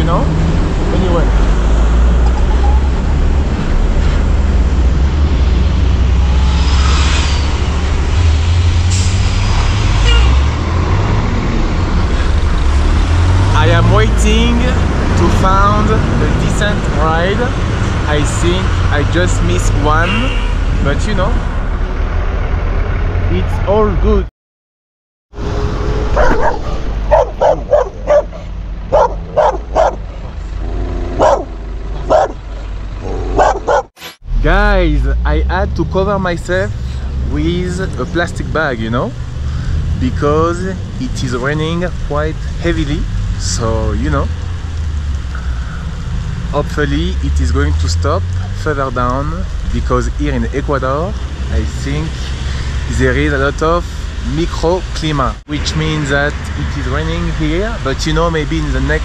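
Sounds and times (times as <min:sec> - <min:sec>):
truck engines rumbling: 0:00.0 - 0:24.3, 0:25.3 - 0:59.0
steady low rumble: 0:25.8 - 0:47.0
dog barking: 0:26.2 - 0:30.1, 0:31.2 - 0:32.4, 0:33.1 - 0:33.9.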